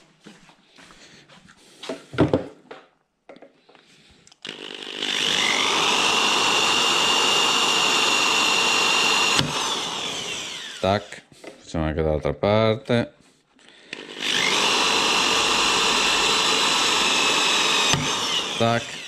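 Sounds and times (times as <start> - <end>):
electric drill whining: 4.4 - 11.4, 13.6 - 19.0.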